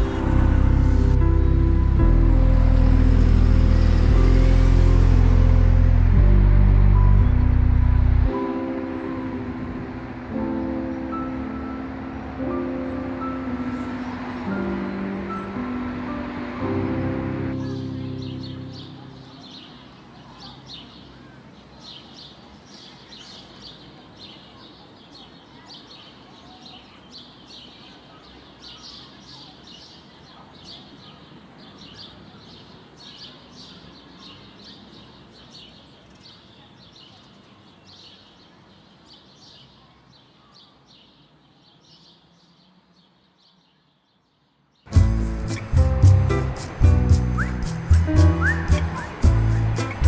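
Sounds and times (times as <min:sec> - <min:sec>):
background noise: 0:00.0 - 0:50.0
small birds chirping: 0:17.4 - 0:50.0.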